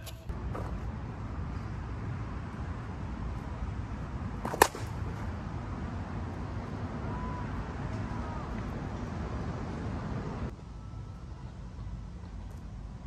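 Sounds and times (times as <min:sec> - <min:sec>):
bat hitting softball: 0:04.4 - 0:05.2.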